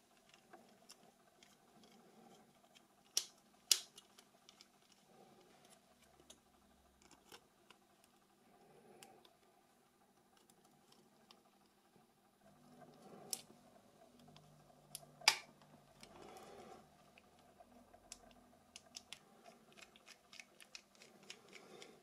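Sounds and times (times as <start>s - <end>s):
plastic phone parts clicking: 2.6s - 5.0s, 18.1s - 22.0s.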